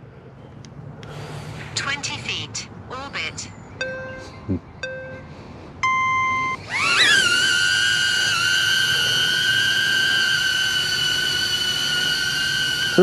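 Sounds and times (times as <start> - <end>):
drone propeller whine: 5.2 - 13.0.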